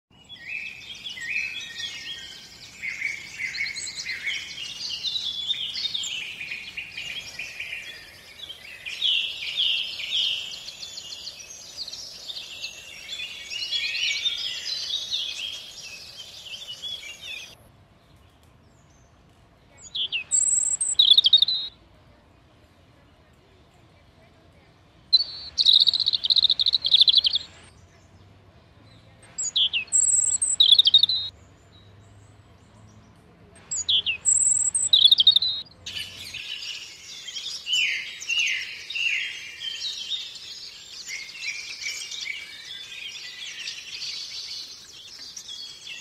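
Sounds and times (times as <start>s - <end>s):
high-pitched bird calls: 0.1s - 17.6s, 19.8s - 21.7s, 25.1s - 27.7s, 29.3s - 31.3s, 33.6s - 46.0s
songbirds warbling: 0.1s - 21.7s, 25.0s - 46.0s.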